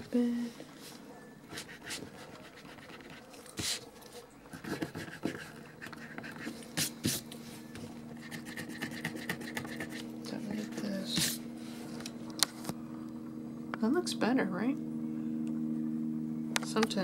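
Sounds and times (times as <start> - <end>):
eraser rubbing on paper: 1.5 - 3.9, 4.5 - 7.2, 8.2 - 11.4.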